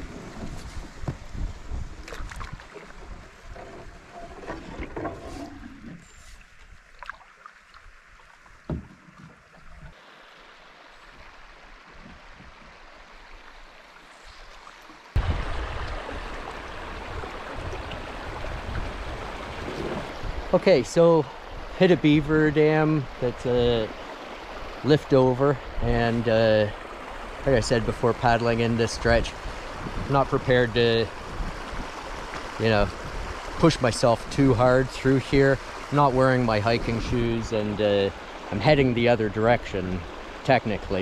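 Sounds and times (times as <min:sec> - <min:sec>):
paddle knocks and clicks: 0:00.0 - 0:01.3, 0:08.6 - 0:09.9
paddle strokes through water: 0:00.0 - 0:20.4
water drips: 0:06.6 - 0:10.0, 0:11.0 - 0:19.0
water rushing over dam: 0:15.2 - 0:41.0.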